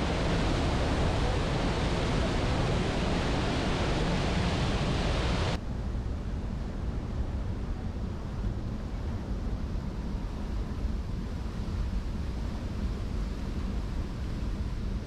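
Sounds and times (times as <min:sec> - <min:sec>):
wind rushing on microphone: 0:00.0 - 0:15.0.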